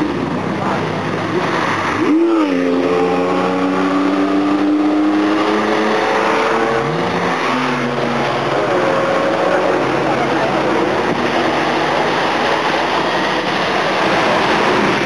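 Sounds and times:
racing cars driving past: 0.0s - 15.0s.

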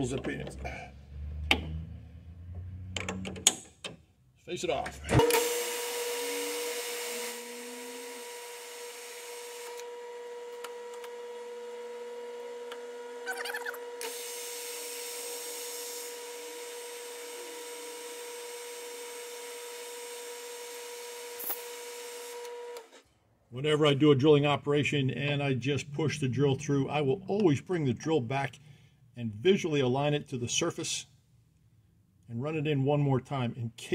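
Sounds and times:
drill boring into brass: 5.2s - 9.9s, 14.0s - 22.8s
metal lathe whining: 5.2s - 11.0s
hiss of metal cutting: 5.3s - 9.6s.

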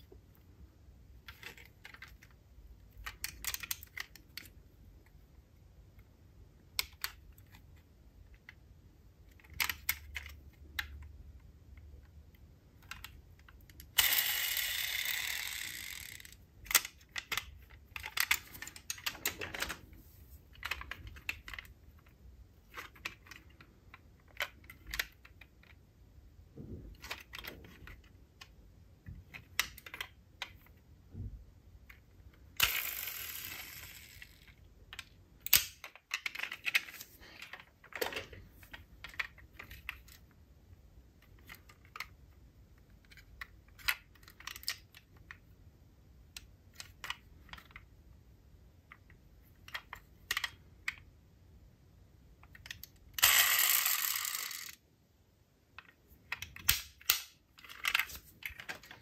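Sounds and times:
metal toy cars clicking: 12.8s - 19.8s, 32.6s - 40.2s, 52.5s - 54.8s.

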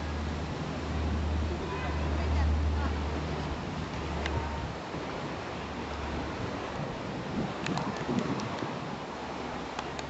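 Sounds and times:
gentle surf: 0.0s - 10.0s
wind buffeting the microphone: 0.0s - 10.0s
faint ticks: 7.6s - 8.7s.

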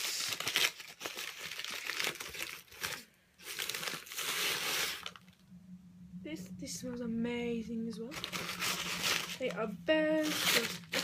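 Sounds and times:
crinkly wrapping being crumpled: 0.0s - 5.4s, 8.1s - 9.6s, 10.2s - 11.0s.

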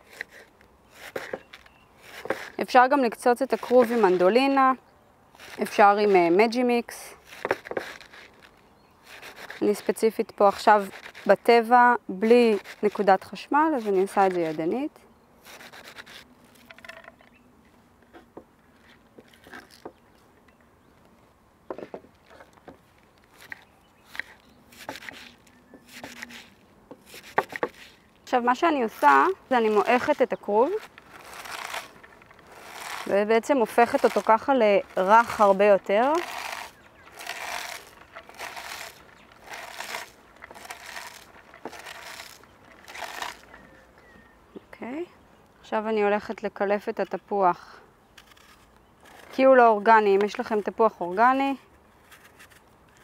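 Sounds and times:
cabbage rustling: 0.0s - 4.8s, 5.4s - 17.0s, 22.1s - 43.9s.

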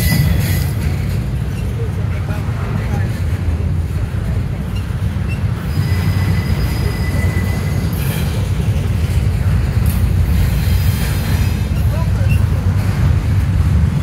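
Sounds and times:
high wheel squeal: 0.0s - 0.8s, 4.6s - 8.8s
train wheels rumbling on rail: 0.0s - 14.0s.

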